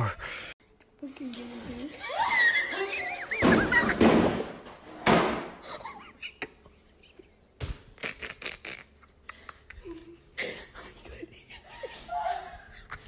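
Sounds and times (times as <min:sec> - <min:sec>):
person falling to the floor: 0:03.3 - 0:05.6
thud: 0:03.4 - 0:05.6.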